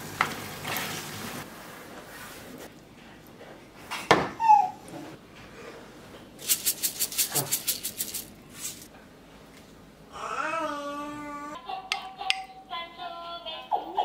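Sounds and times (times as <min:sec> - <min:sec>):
sesame seeds rattling in container: 0:06.4 - 0:08.9.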